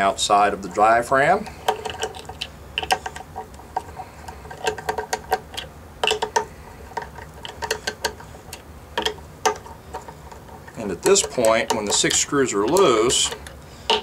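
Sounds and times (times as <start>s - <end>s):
nut driver clicking on metal screws: 11.0s - 14.0s.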